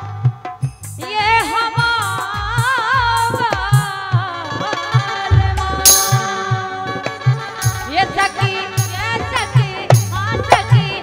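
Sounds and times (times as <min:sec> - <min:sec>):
harmonium: 0:00.0 - 0:11.0
hand drum beat: 0:01.0 - 0:11.0
woman singing folk song: 0:01.0 - 0:11.0
metallic crash: 0:05.6 - 0:06.9.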